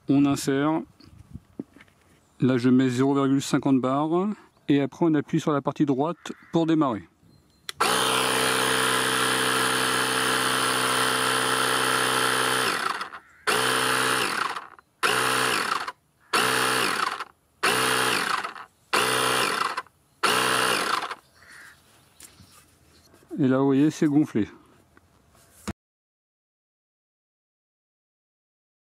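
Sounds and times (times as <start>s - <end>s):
cordless air compressor running: 7.7s - 21.2s.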